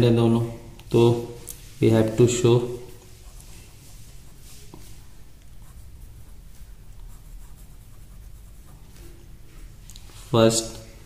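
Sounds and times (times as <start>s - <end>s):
low steady hum: 0.0s - 11.0s
pen writing on paper: 5.5s - 9.1s.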